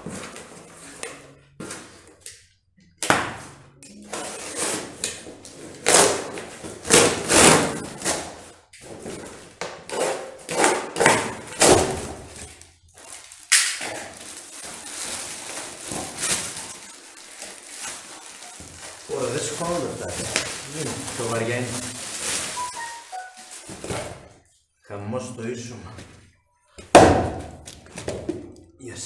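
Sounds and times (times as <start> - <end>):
cardboard tearing: 5.7 - 8.4
plastic straps cut and pulled off: 5.8 - 8.3
plastic wrap crinkling: 11.3 - 24.5.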